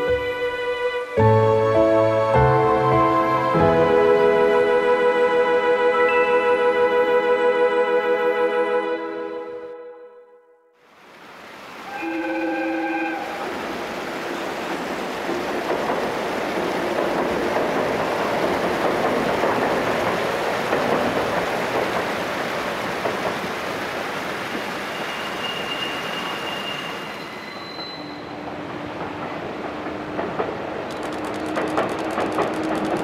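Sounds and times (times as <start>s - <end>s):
train rumbling over a bridge: 11.4s - 33.0s
train horn note: 11.9s - 13.5s.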